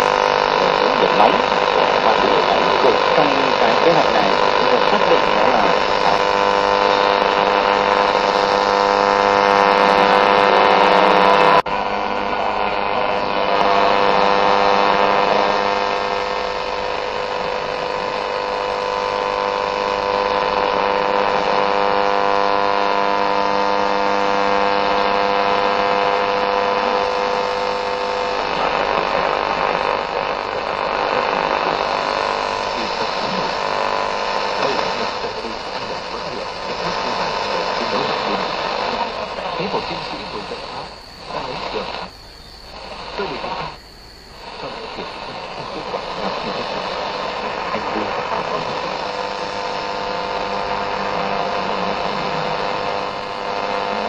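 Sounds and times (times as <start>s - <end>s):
radio electrical buzz: 0.0s - 54.0s.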